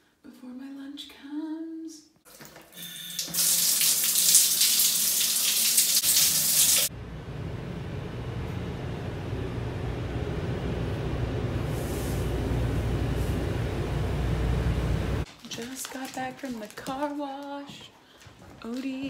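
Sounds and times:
shower water spray hiss: 3.4 - 6.9
low steady rumble: 6.9 - 15.3.

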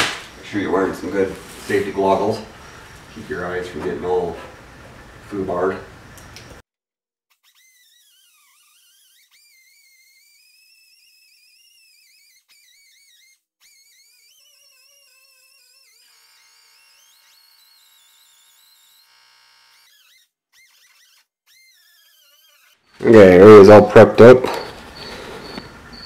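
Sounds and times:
rotary power tool grinding metal: 7.3 - 23.1, 24.5 - 26.0.

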